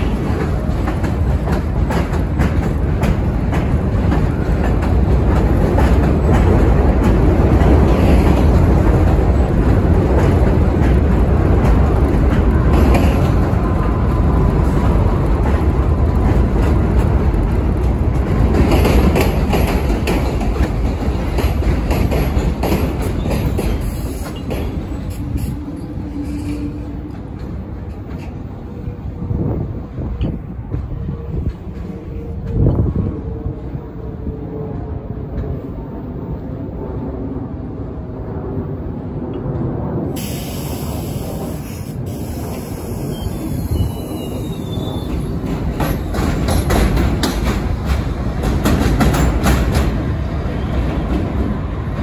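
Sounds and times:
train wheels clattering over rails: 0.0s - 28.7s, 40.2s - 52.0s.

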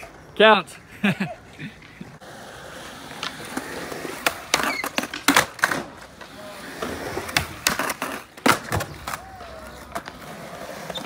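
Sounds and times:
skateboard wheels rolling on concrete: 0.0s - 11.0s
skateboard clacks and knocks: 4.2s - 11.0s.

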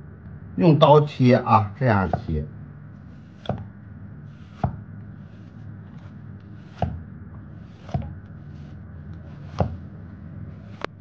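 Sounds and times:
knife slicing corn: 3.1s - 3.7s, 4.3s - 9.9s, 10.6s - 11.0s
cleaver chopping on wooden block: 3.2s - 3.7s, 4.3s - 7.0s, 7.6s - 9.8s.

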